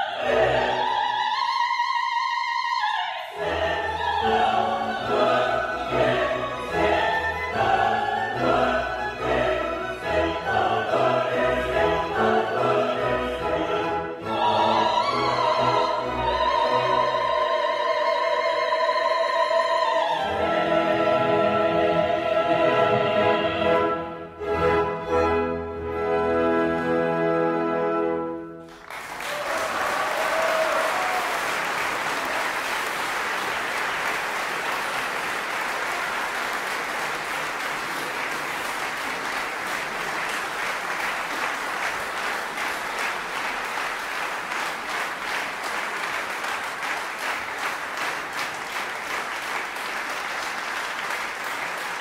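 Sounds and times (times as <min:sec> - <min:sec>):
orchestral music: 0:03.4 - 0:28.7
audience applauding: 0:28.6 - 0:52.0.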